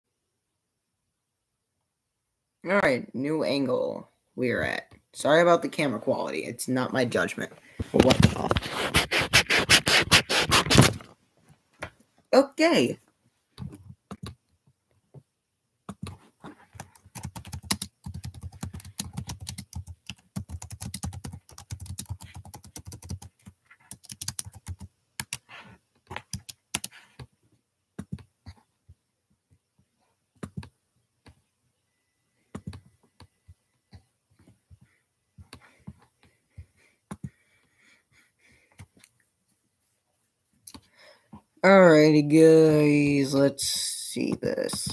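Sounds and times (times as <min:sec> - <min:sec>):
typing on computer keyboard: 0:16.8 - 0:25.5, 0:26.1 - 0:27.3.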